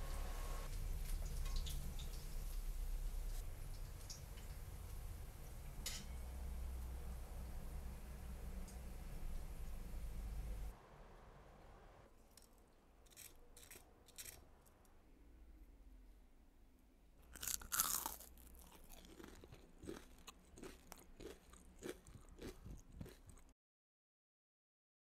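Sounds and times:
crunchy chewing: 12.3s - 14.7s, 17.2s - 23.5s
biting into crispy food: 17.2s - 23.5s.

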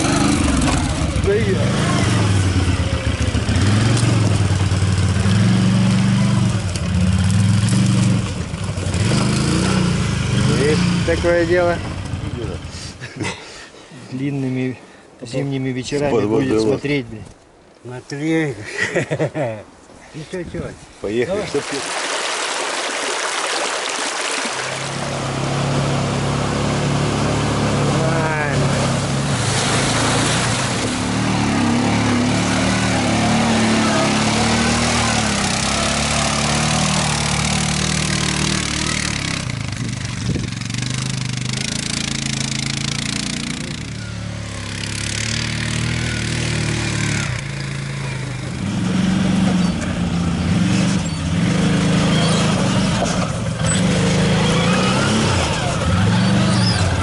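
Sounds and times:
quad bike engine under load: 0.0s - 11.2s, 29.9s - 57.0s.

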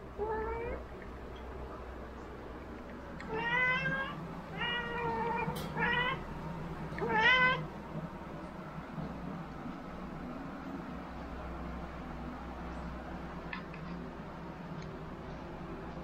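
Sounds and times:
cat meowing: 3.2s - 6.2s, 7.0s - 7.7s.

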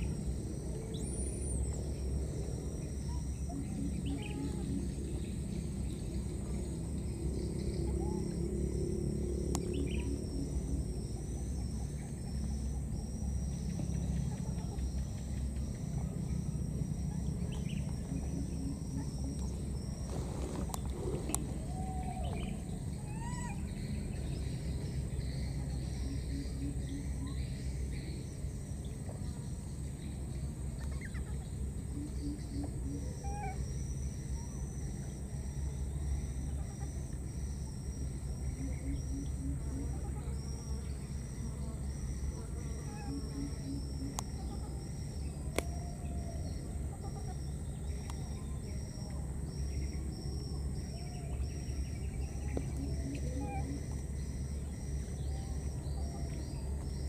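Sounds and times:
insects trilling: 0.0s - 57.0s
low steady rumble: 0.0s - 57.0s
bird chirps: 3.0s - 8.9s, 9.5s - 16.5s
click: 45.5s - 45.7s.

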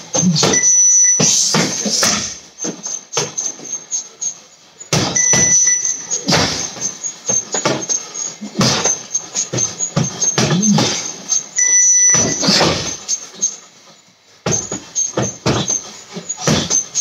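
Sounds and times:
short high beep: 0.5s - 1.6s, 5.2s - 6.3s, 11.6s - 12.8s.

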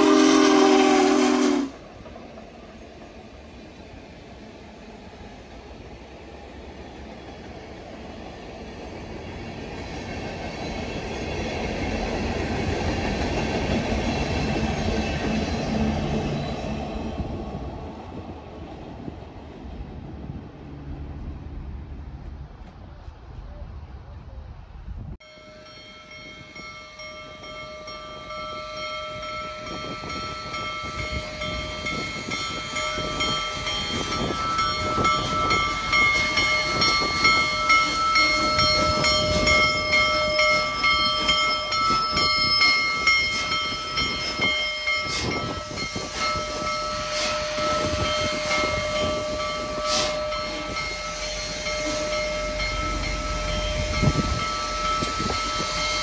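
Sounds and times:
steam locomotive approaching: 0.0s - 56.0s
high ringing tones: 25.2s - 56.0s.

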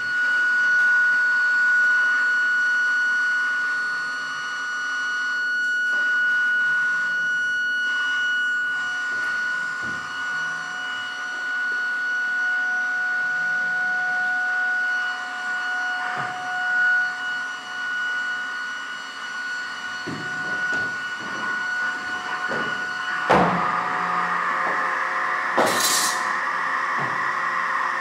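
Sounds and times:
electronic drone: 19.4s - 28.0s.

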